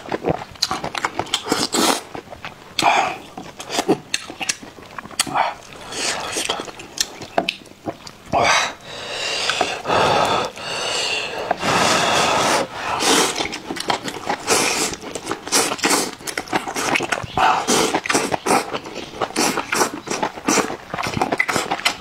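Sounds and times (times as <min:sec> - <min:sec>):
wet chewing: 0:00.0 - 0:22.0
person slurping noodles: 0:01.4 - 0:02.1, 0:05.2 - 0:06.8, 0:08.4 - 0:21.8.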